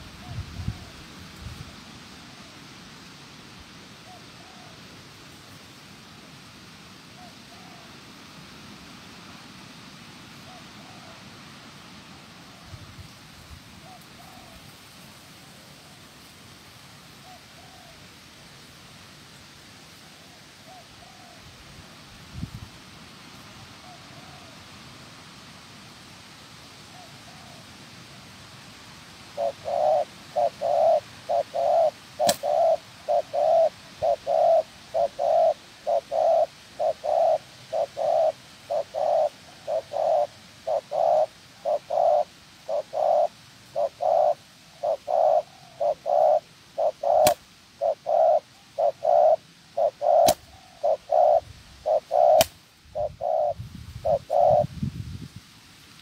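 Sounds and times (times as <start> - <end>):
dove cooing: 4.0 - 4.8, 7.2 - 8.0, 10.4 - 11.2, 13.8 - 14.7, 17.2 - 18.1, 20.2 - 21.5, 23.8 - 24.6, 26.9 - 27.7, 29.3 - 54.7.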